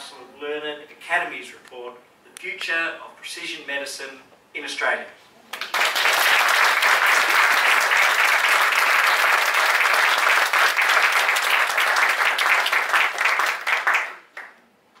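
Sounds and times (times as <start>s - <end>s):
audience applauding: 5.5s - 14.6s.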